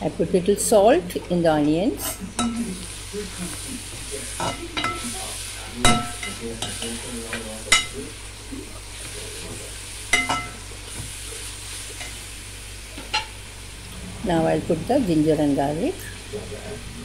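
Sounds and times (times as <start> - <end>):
onions sizzling in hot oil: 0.0 - 17.0
spoon stirring in a pan: 2.0 - 8.0, 10.0 - 12.2
spoon clinking against pan: 10.1 - 10.6.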